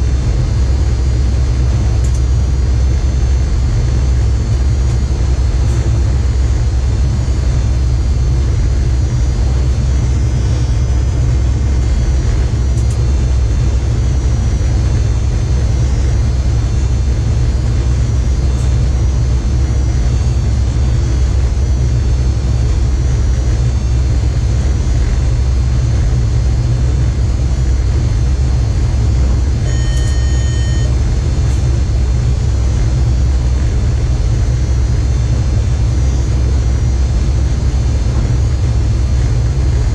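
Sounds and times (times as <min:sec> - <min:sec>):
train cab low rumble: 0:00.0 - 0:39.9
cab alert beep: 0:29.6 - 0:31.0.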